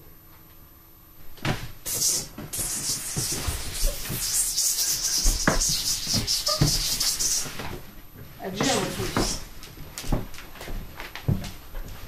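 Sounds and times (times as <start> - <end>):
rough flickering hiss: 1.9 - 7.6
dull thumps: 5.0 - 7.9, 8.6 - 9.5.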